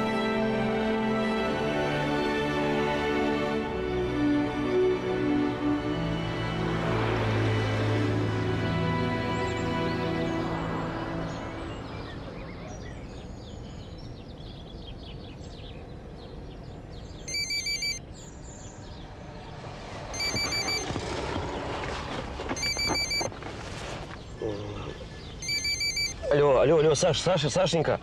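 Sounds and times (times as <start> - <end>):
phone trilling ringtone: 17.3 - 18.0, 20.1 - 20.9, 22.6 - 23.3, 25.4 - 26.3.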